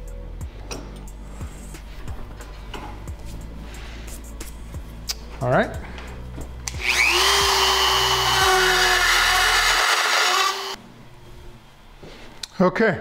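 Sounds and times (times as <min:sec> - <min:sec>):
rotary tool grinding metal: 0:06.8 - 0:10.8.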